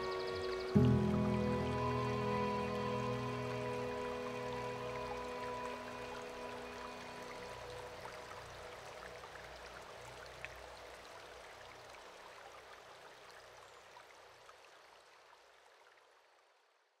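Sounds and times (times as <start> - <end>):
water dripping: 0.0 - 14.8
running water hiss: 0.0 - 15.4.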